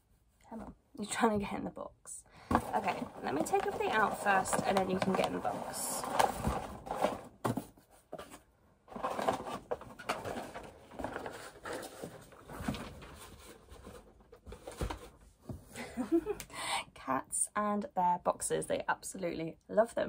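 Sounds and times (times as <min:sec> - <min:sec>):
packaging rustling: 0:02.5 - 0:08.3, 0:08.9 - 0:15.2.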